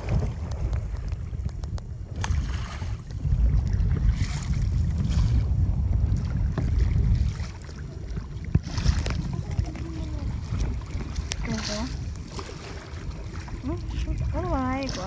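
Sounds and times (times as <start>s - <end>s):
paddle splashing in water: 0.0s - 15.0s
wind rumbling on microphone: 0.0s - 15.0s.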